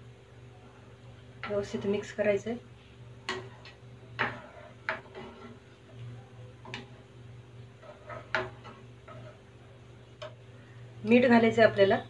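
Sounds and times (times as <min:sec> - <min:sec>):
spoon stirring thick curry: 0:03.2 - 0:10.5.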